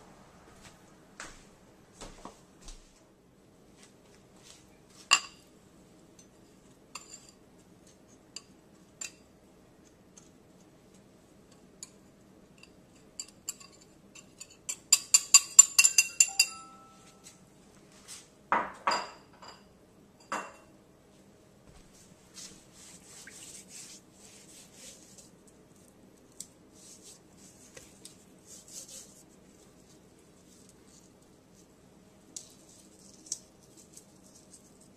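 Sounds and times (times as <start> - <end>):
utensil clinking against dish: 12.6 - 16.8
soft rustling of rub on meat: 21.1 - 34.9.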